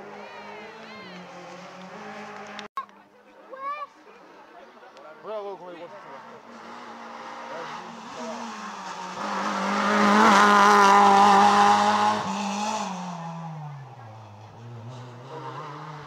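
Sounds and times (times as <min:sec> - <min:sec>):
rally car engine passing by: 0:00.0 - 0:02.7, 0:05.8 - 0:16.0.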